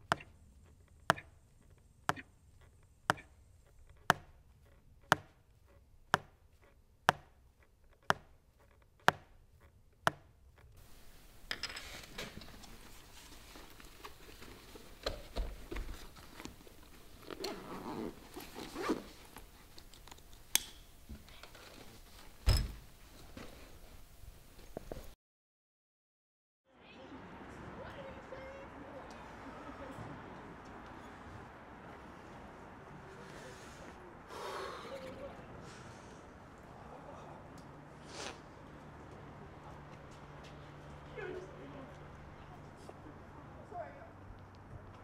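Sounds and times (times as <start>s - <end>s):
wall clock ticking: 0.0s - 10.8s
bag rustling and knocking: 12.1s - 19.6s.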